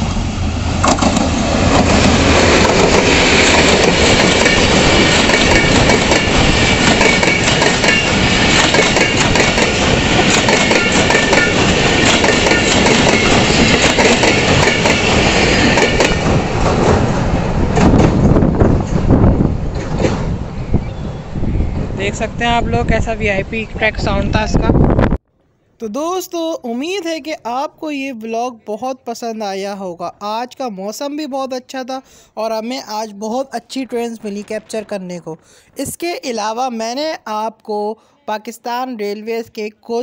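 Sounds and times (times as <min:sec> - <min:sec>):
diesel locomotive engine: 0:00.0 - 0:24.9
train wheels clattering on rails: 0:00.8 - 0:17.1, 0:17.7 - 0:19.1, 0:19.7 - 0:20.3.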